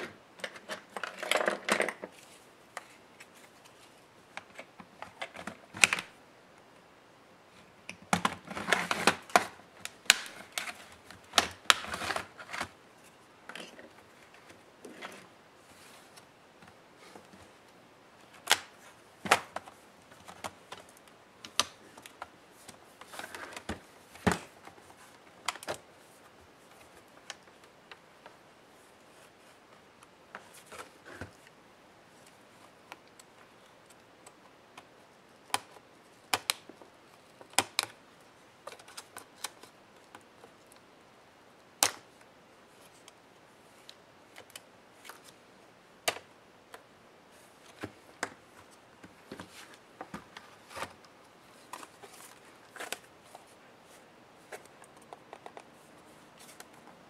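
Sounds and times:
plastic clicks and snaps: 19.3 - 22.3, 41.8 - 42.1.

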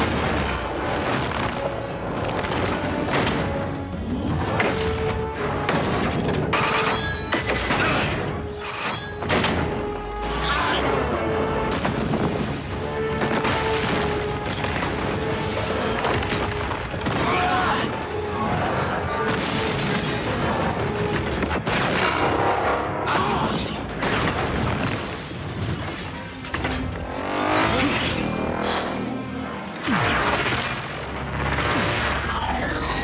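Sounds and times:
orchestral score: 0.0 - 33.0
shattering glass and debris: 5.7 - 9.7, 11.8 - 17.2.

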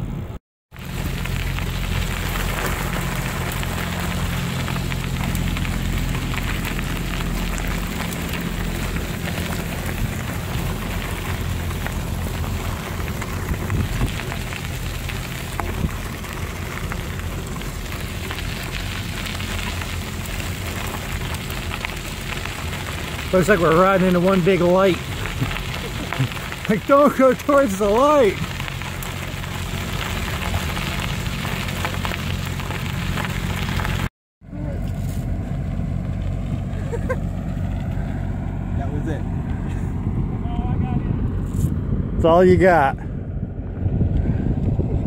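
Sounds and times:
wind buffeting microphone: 2.0 - 21.0, 38.3 - 45.0.

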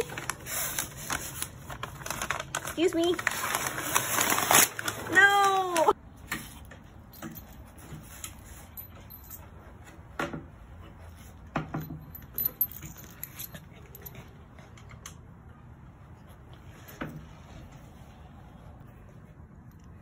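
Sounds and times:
faint metallic jingle: 8.4 - 9.7, 11.8 - 14.3.

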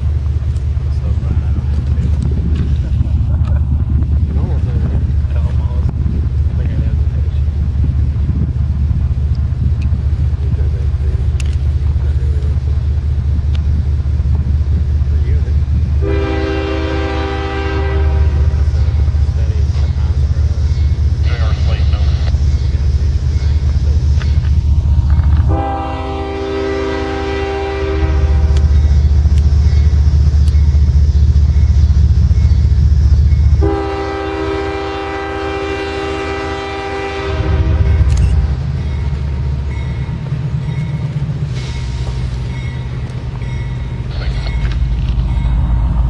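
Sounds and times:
freight train rumbling past: 0.0 - 46.0
locomotive horn blasts: 16.0 - 18.6, 25.5 - 28.8, 33.6 - 38.1.

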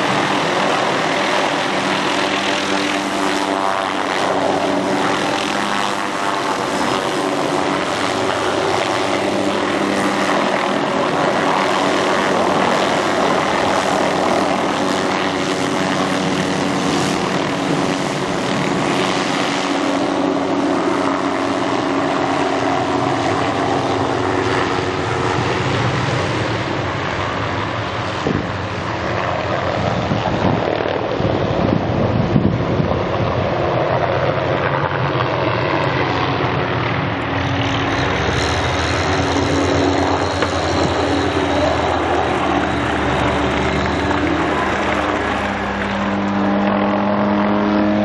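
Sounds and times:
helicopter rotor and engine: 0.0 - 48.0
high whine: 36.4 - 48.0.

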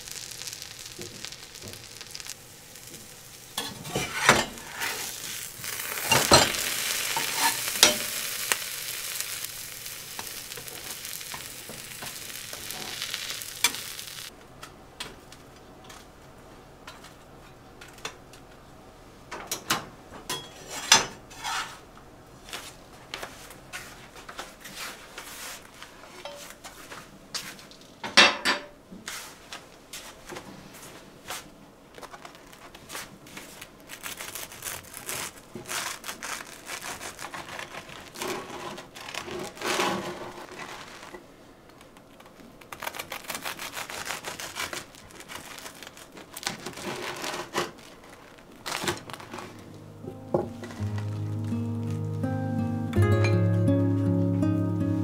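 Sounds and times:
utensil clicking on frying pan: 5.7 - 9.3.

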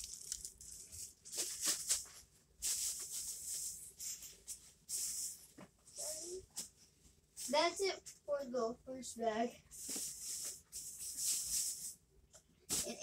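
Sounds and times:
packaging rustling and rattling: 0.0 - 3.7.

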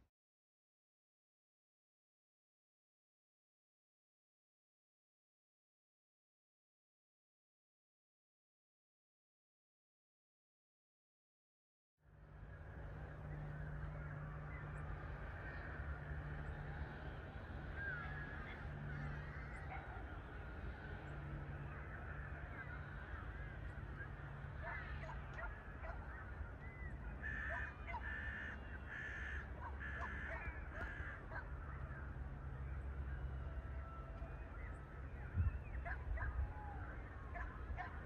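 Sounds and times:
distant jet airliner rumble: 12.1 - 38.0
loud bird calls: 13.0 - 38.0
small birds chirping: 13.1 - 38.0.

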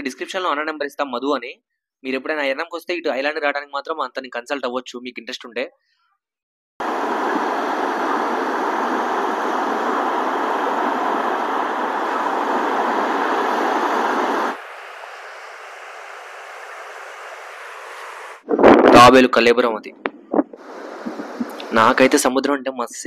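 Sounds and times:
sea surf roar: 6.8 - 18.8, 20.4 - 22.2.

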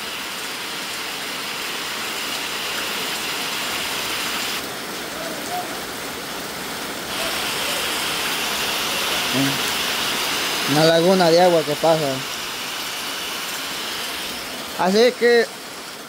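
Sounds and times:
heavy rain on concrete: 0.0 - 16.0.

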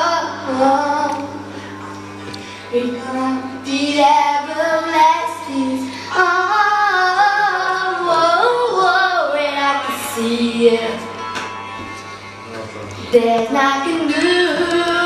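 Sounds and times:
woman singing: 0.0 - 1.4, 2.7 - 11.2, 13.0 - 15.0.

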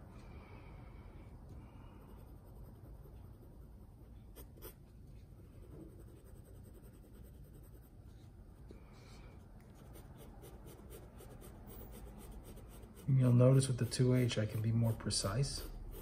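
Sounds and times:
pencil scratching on paper: 2.0 - 4.8, 5.5 - 8.3, 9.6 - 16.0.

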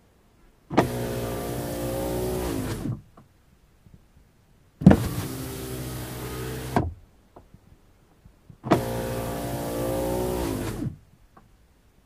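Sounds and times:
power window motor whine: 0.7 - 3.0, 4.8 - 6.9, 8.7 - 11.0
window motor clunk: 0.7 - 3.0, 4.8 - 7.0, 8.6 - 11.0.

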